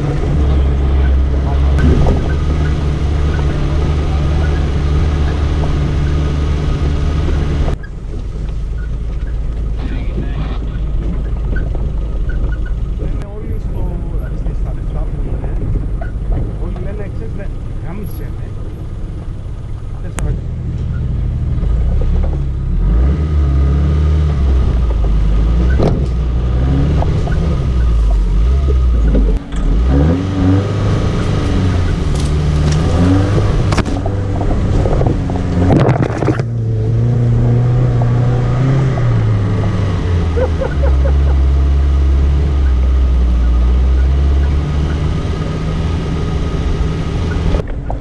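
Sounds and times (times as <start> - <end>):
vehicle knocks and rattles: 0.0 - 20.0, 24.2 - 48.0
vehicle engine running under load: 0.0 - 48.0
branches scraping vehicle body: 30.8 - 40.4.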